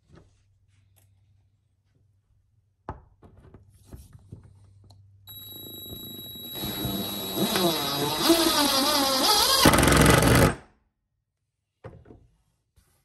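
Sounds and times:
cordless power driver running: 0:05.4 - 0:10.5.

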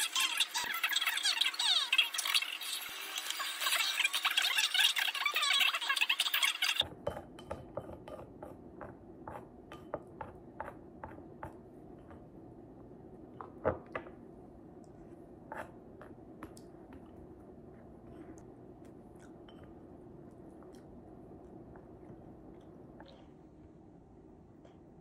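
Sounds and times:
faint steady hum: 0:06.8 - 0:25.0.

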